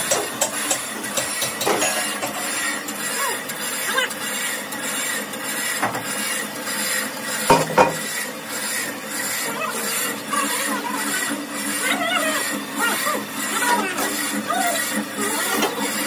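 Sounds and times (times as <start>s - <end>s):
sharp metal clanks: 0.1s - 2.7s, 7.5s - 8.1s
metal scraping and clattering: 1.2s - 2.8s.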